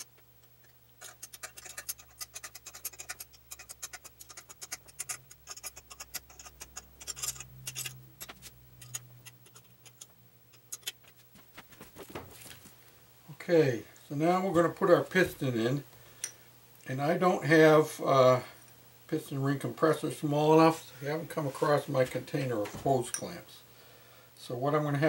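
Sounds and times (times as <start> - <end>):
metal wrench clicking and scraping: 1.0 - 11.0.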